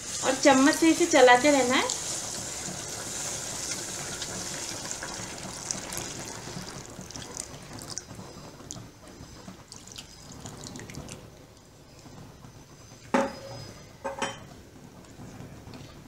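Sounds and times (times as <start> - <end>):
liquid hissing in hot pan: 0.0 - 8.6.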